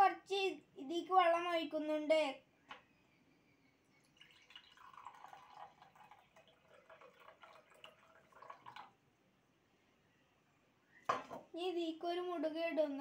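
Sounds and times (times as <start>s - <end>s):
water pouring into a glass: 4.0s - 9.0s.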